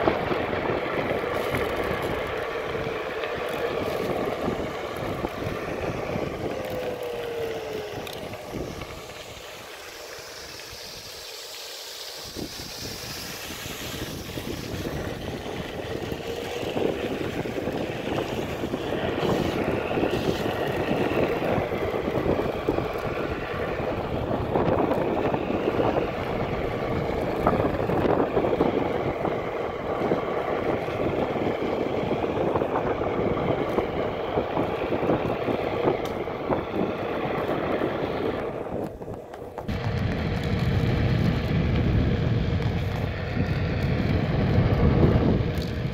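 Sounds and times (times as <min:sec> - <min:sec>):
tyre noise: 0:00.0 - 0:11.5, 0:12.3 - 0:45.9
electric motor hum: 0:00.0 - 0:45.9
faint steady whine: 0:00.0 - 0:45.9
wind rushing over microphone: 0:00.0 - 0:45.9.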